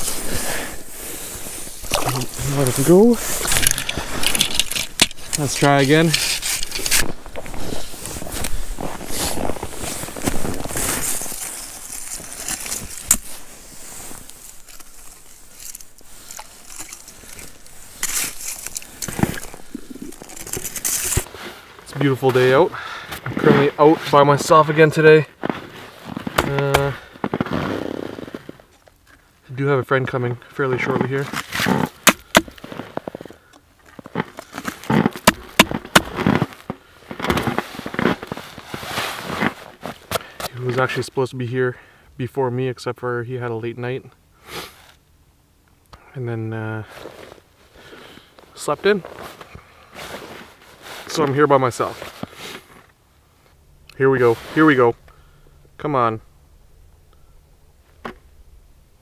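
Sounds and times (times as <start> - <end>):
ice scoop scraping slush: 0.0 - 21.6
rustling and crunching on snow: 0.0 - 28.8, 30.1 - 41.0, 46.8 - 52.9, 54.0 - 55.0.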